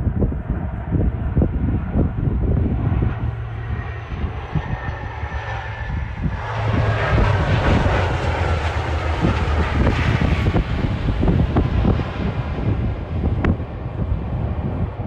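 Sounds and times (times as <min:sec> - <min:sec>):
turboprop engines droning: 0:00.0 - 0:15.0.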